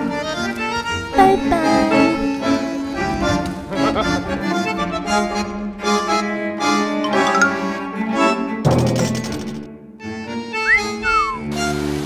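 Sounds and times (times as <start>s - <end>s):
instrumental music with held notes: 5.1s - 9.2s, 10.0s - 12.0s.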